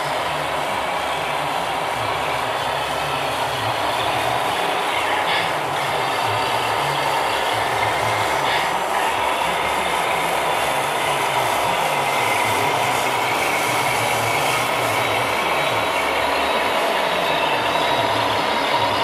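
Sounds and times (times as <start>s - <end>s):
model trucks mechanical whir: 0.0s - 19.0s.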